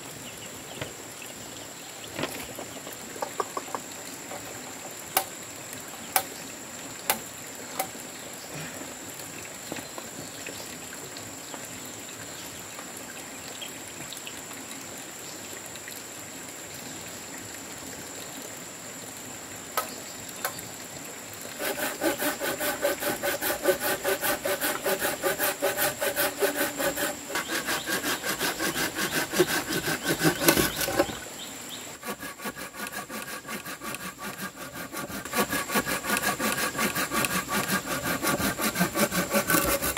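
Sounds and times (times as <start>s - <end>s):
hand saw cutting wood: 21.5s - 31.3s, 32.0s - 39.9s.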